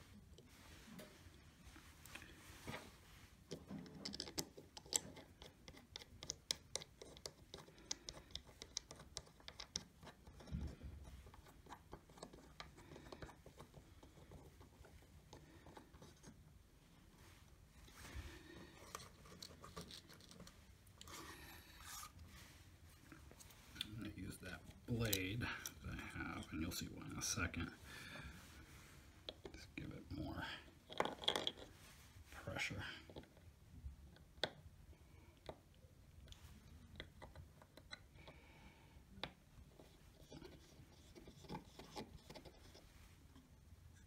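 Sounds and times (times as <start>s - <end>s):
small plastic clicks and scrapes: 3.5s - 16.4s.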